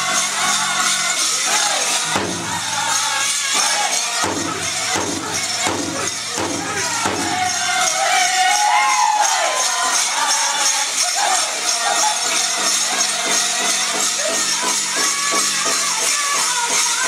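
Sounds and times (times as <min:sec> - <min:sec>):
bells jingling: 0:00.0 - 0:17.0
drum group drumming: 0:00.0 - 0:17.0
group singing: 0:00.0 - 0:17.0.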